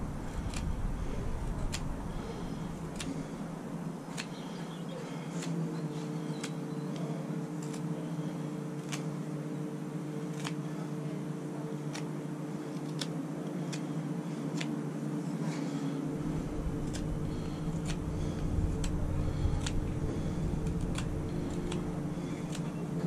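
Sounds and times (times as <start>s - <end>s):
low hum: 0.0s - 23.0s
knife cutting wood clicks: 0.4s - 0.8s, 1.4s - 2.3s, 2.9s - 3.4s, 4.1s - 4.6s, 5.4s - 5.6s, 6.3s - 7.9s, 8.8s - 9.1s, 10.3s - 10.6s, 11.9s - 12.1s, 12.8s - 14.8s, 16.7s - 22.8s.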